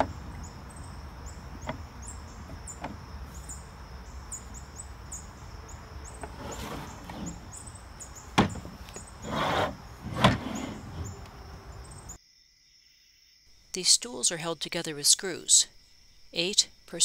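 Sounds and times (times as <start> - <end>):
scraping rustle: 6.0 - 11.4.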